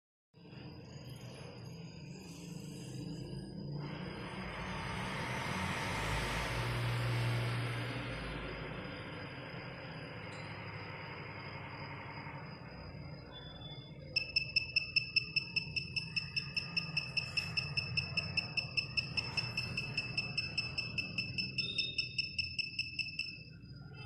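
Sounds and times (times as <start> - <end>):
piezo buzzer beeping rapidly: 14.2 - 23.5.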